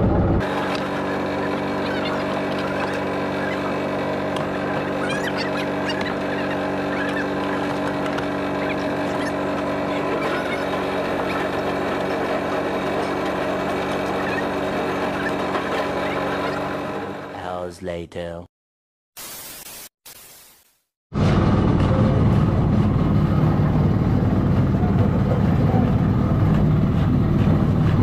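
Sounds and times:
boat engine running: 0.0s - 17.6s, 21.2s - 28.0s
high chirps: 4.5s - 7.7s.

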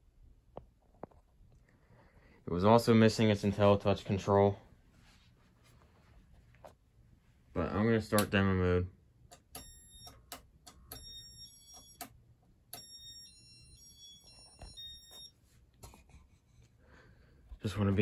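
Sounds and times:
electronic beeps: 12.8s - 15.3s.

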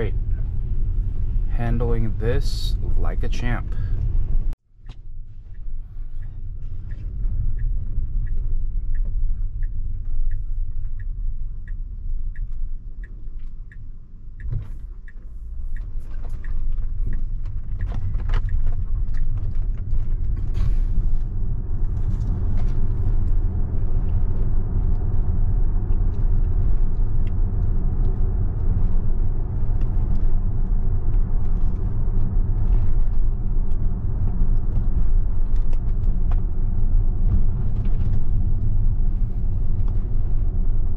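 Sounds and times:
turn signal ticking: 0.0s - 40.9s
tyre and road rumble: 0.0s - 40.9s.

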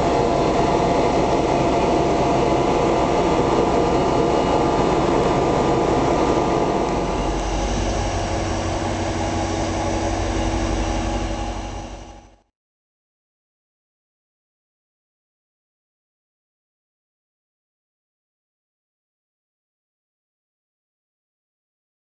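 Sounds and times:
locomotive engine rumble: 0.0s - 12.4s.

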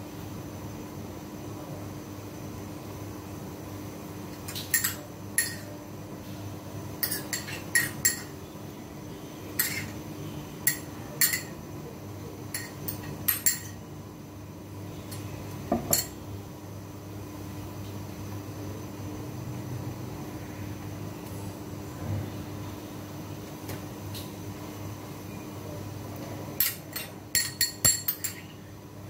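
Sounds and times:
steady low hum: 0.0s - 29.0s
metal spoon clinking ceramic bowl: 4.5s - 5.7s, 7.0s - 8.3s, 9.6s - 9.9s, 10.6s - 11.5s, 12.5s - 13.8s, 26.6s - 28.5s.

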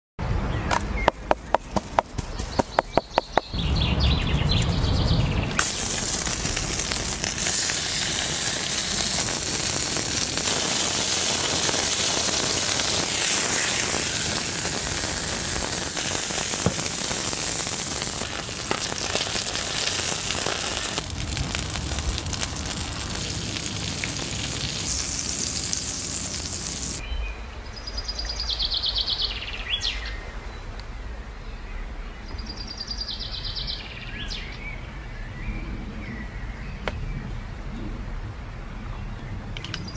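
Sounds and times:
birds chirping: 0.5s - 7.3s
burger patties sizzling: 5.6s - 27.0s.

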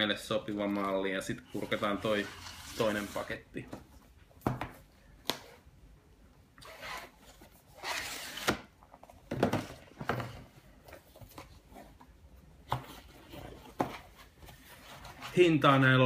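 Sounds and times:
cardboard scraping rustle: 1.5s - 3.4s.

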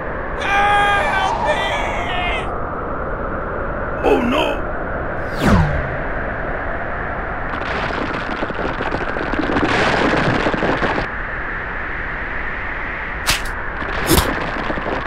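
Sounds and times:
rushing roar of wind: 0.0s - 15.0s
short sharp crack: 13.3s - 14.5s.

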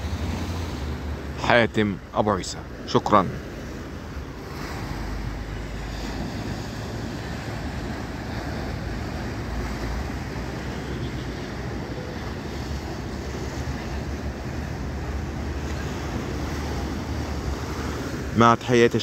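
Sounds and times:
sea surf against concrete blocks: 0.0s - 19.0s.

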